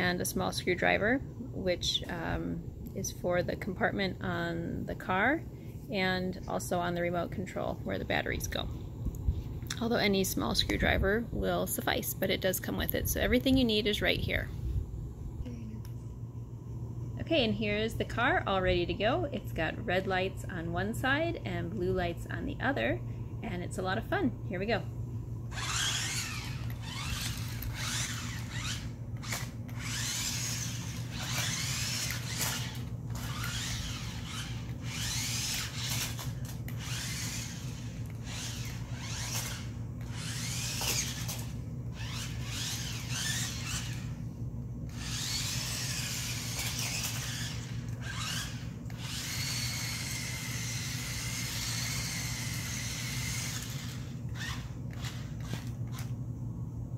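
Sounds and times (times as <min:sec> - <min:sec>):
steady low hum: 0:00.0 - 0:56.9
toy car electric motor whine: 0:25.5 - 0:44.2, 0:44.9 - 0:56.2.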